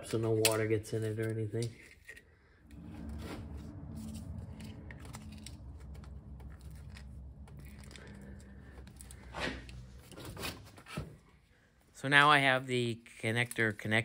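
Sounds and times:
steady low hum: 2.6 - 11.5.

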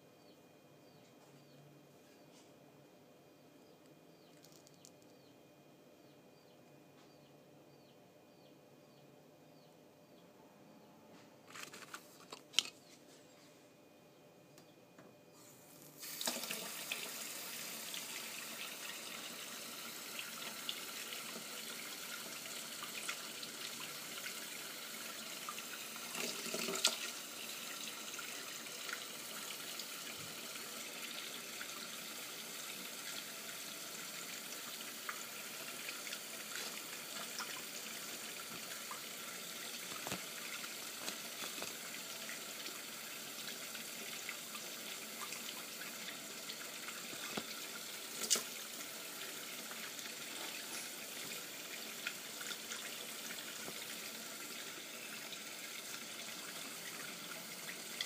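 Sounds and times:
water running from tap: 15.9 - 58.0.

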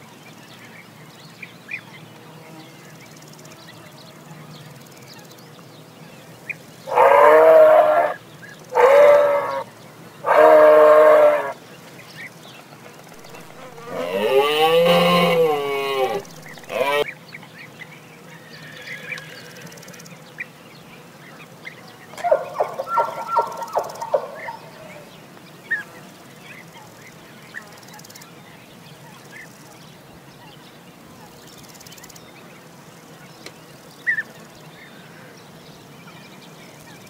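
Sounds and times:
moose calling: 6.9 - 9.6, 10.2 - 11.6, 13.2 - 17.0, 22.2 - 25.1.

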